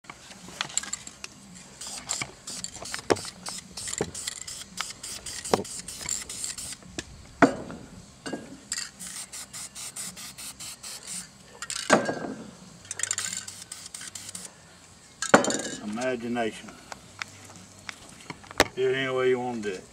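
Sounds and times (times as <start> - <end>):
aerosol paint spraying: 1.8 - 6.9, 8.8 - 11.4, 13.0 - 14.5.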